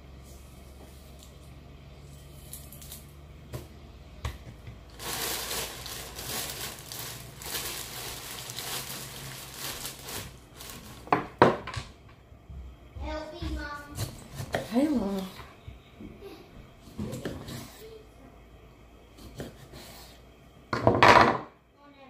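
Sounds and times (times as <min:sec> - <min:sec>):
low steady hum: 0:00.0 - 0:22.0
crinkling and rustling: 0:04.5 - 0:12.0.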